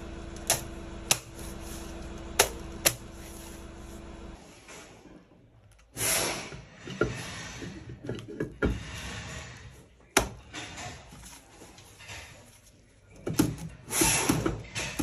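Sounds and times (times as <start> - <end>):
metal scraping rustle: 6.0 - 8.0, 8.7 - 12.9.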